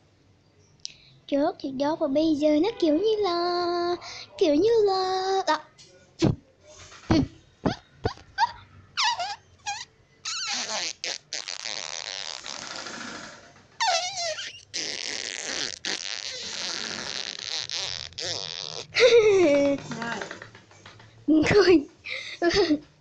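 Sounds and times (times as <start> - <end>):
sputtering fart sounds: 9.0 - 20.6
short falling squeals: 13.8 - 18.9.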